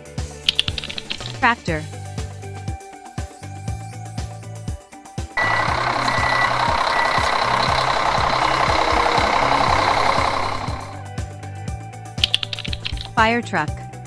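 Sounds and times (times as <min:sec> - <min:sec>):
background music with steady beat: 0:00.0 - 0:13.3
tractor diesel engine running: 0:00.5 - 0:01.5, 0:05.4 - 0:11.1, 0:12.2 - 0:13.2.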